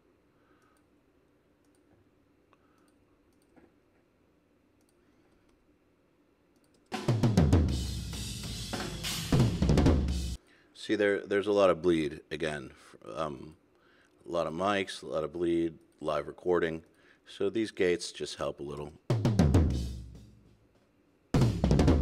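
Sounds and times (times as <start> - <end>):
faint clicks: 0.6 - 0.9, 1.6 - 4.1, 4.8 - 5.6
fast drum hits: 7.0 - 10.4, 19.1 - 20.2, 21.4 - 22.0.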